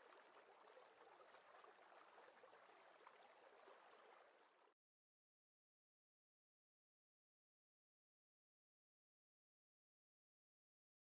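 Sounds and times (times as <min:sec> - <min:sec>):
faint fizzing crackling water: 0:00.0 - 0:04.8.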